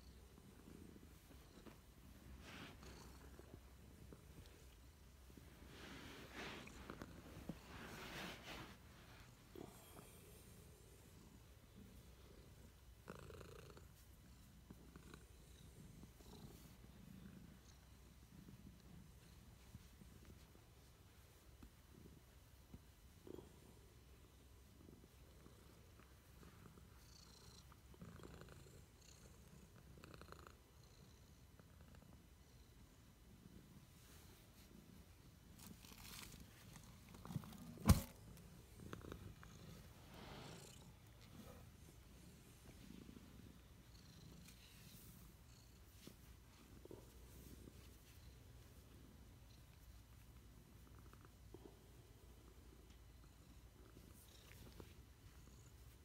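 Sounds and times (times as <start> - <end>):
cat purring: 0.0 - 56.0
fur rustling: 5.5 - 9.3.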